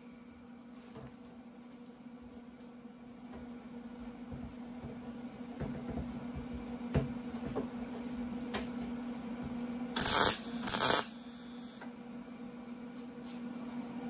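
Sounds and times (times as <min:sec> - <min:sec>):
steady low hum: 0:00.0 - 0:14.0
crackling tack welds: 0:10.0 - 0:11.8.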